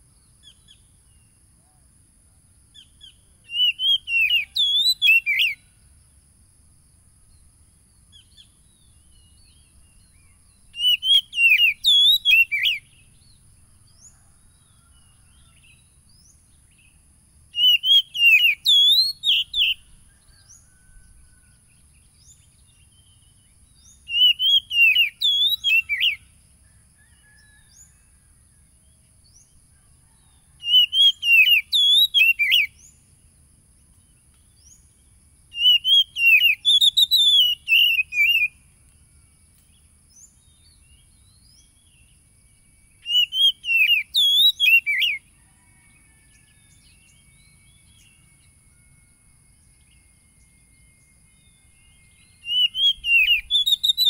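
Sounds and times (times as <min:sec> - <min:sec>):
bird singing whistled phrases: 0:03.0 - 0:05.6, 0:10.7 - 0:13.0, 0:17.6 - 0:20.9, 0:23.9 - 0:26.2, 0:30.6 - 0:32.9, 0:35.5 - 0:38.6, 0:43.0 - 0:45.2, 0:49.9 - 0:54.0.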